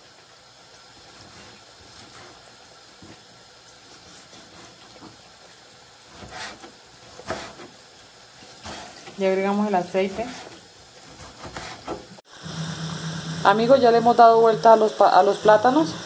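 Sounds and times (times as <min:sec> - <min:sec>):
frying in hot oil: 0:00.0 - 0:16.0
knife slicing on cutting board: 0:10.2 - 0:12.1.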